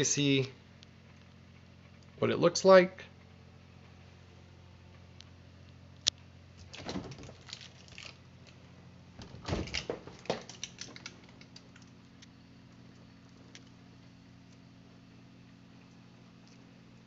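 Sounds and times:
steady low hum: 0:00.0 - 0:17.0
plastic knocks and rattles: 0:06.6 - 0:07.8, 0:09.2 - 0:11.2.

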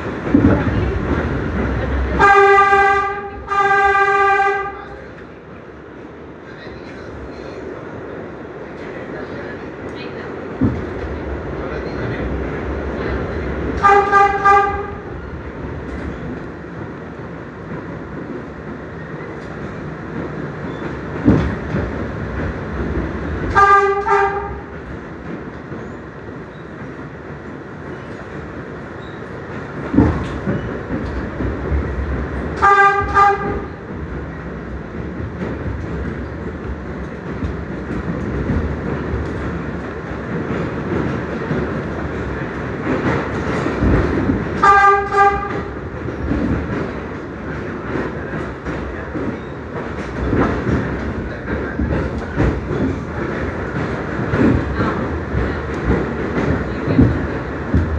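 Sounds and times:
subway train rumble and rail noise: 0:00.0 - 0:57.9
train horn double toot: 0:02.2 - 0:04.8, 0:13.8 - 0:15.1, 0:23.5 - 0:24.7, 0:32.6 - 0:33.7, 0:44.6 - 0:45.7
wheels clunking over rail joints: 0:10.5 - 0:57.9.

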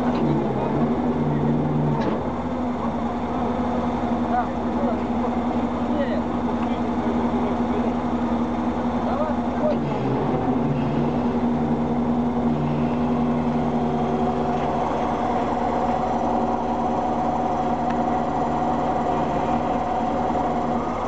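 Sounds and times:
crane engine idling: 0:00.0 - 0:21.0
high steady whine: 0:10.4 - 0:21.0.

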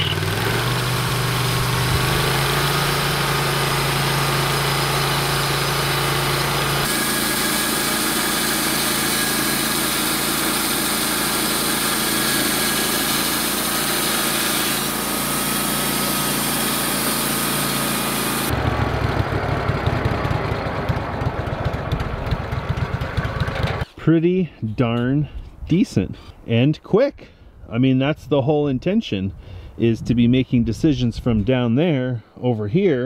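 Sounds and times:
gas engine running: 0:00.0 - 0:23.8
band blade sawing log hiss: 0:06.8 - 0:18.5.

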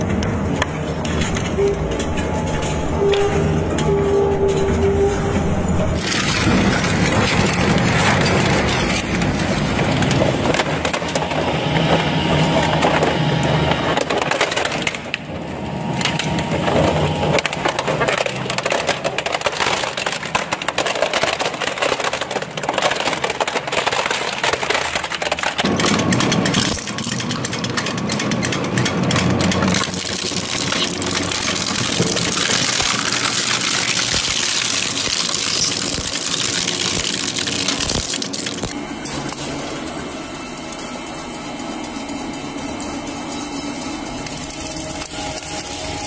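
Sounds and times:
shredder crushing plastic: 0:06.0 - 0:39.4.

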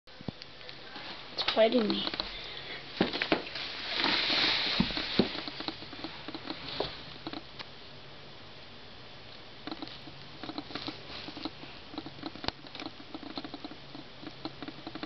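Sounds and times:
short rustle: 0:03.0 - 0:07.0
animals scuffling and scratching: 0:03.0 - 0:07.4.

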